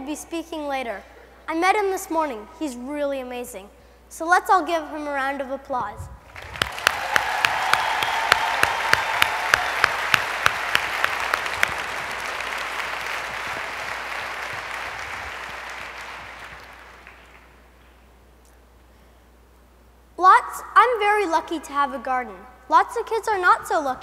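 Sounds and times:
audience applauding: 6.3s - 17.7s
sharp single claps: 6.4s - 17.6s.

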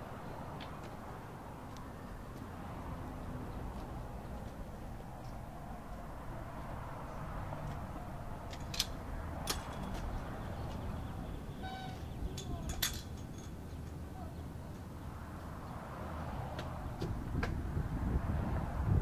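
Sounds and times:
low street rumble: 0.0s - 19.0s
metal gate latch clicks: 8.6s - 10.0s, 12.3s - 13.6s
gate squeak: 11.5s - 13.0s.

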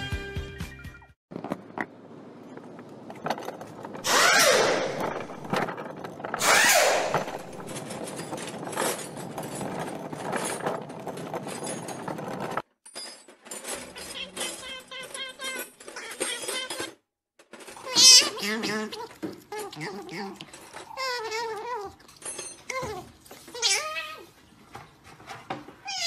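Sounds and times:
rattling: 1.3s - 26.0s
power tool running: 4.0s - 5.5s, 6.4s - 7.7s.

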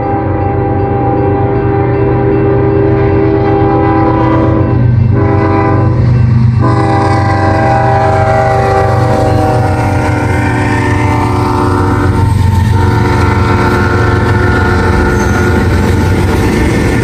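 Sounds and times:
locomotive air horn blasts: 0.0s - 16.2s.

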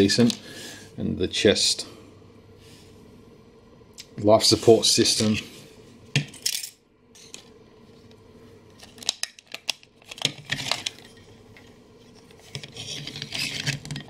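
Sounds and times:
plastic scraping on plastic: 8.8s - 14.0s.

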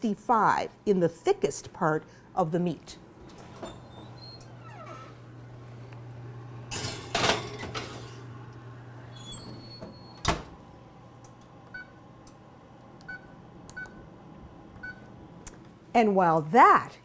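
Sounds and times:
oven door squeak: 3.2s - 5.2s, 9.0s - 10.4s
oven door banging shut: 9.4s - 10.6s.

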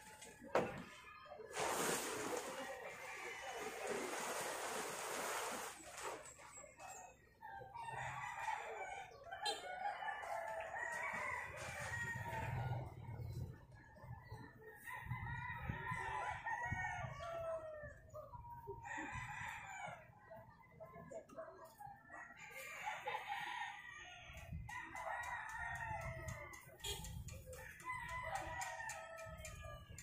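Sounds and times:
roosters crowing: 7.8s - 13.0s, 22.4s - 30.0s.

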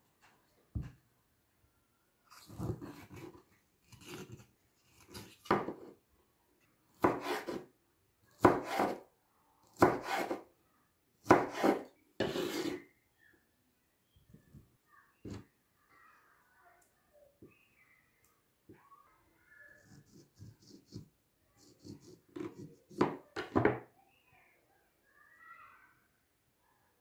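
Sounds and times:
knife cutting on wooden board: 2.5s - 5.9s, 7.0s - 7.6s, 8.4s - 9.0s, 9.8s - 10.4s, 11.3s - 12.8s.

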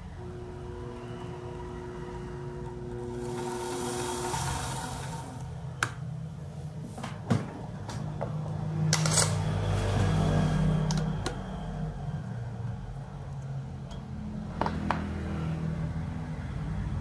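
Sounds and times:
lathe motor hum: 0.0s - 6.0s.

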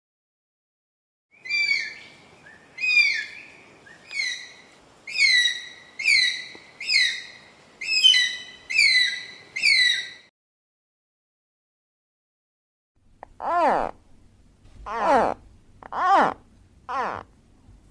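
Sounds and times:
eagle whistled calls: 1.4s - 10.3s.

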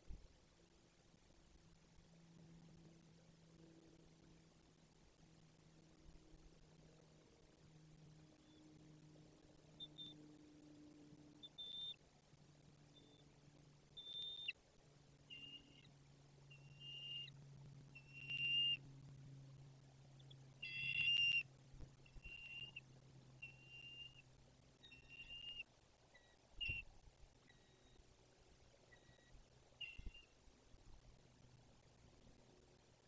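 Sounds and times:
faint low hum: 0.0s - 33.0s
eagle whistled chirps: 11.4s - 12.0s, 14.0s - 14.6s, 15.3s - 15.9s, 16.5s - 17.4s, 18.0s - 18.8s, 20.6s - 21.4s, 22.1s - 22.8s, 23.4s - 24.2s, 24.8s - 26.9s, 28.9s - 30.4s.

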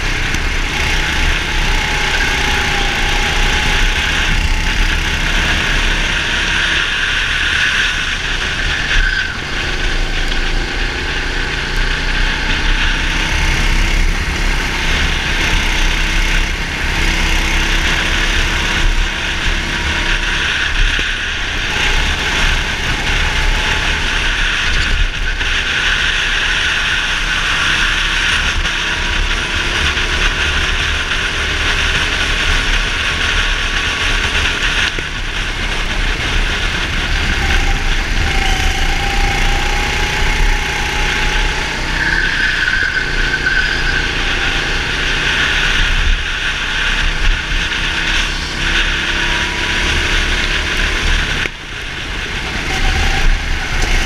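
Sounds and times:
go-kart engine racing: 0.0s - 54.0s
steady rushing noise: 0.0s - 54.0s.

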